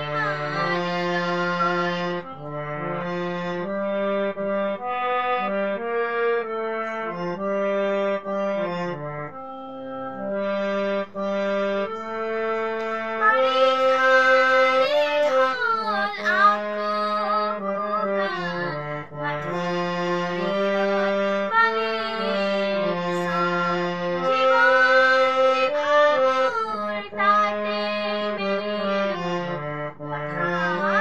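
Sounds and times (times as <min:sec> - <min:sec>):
girl singing: 0:00.0 - 0:02.2, 0:13.1 - 0:29.4, 0:30.0 - 0:31.0
harmonium melody: 0:00.0 - 0:31.0.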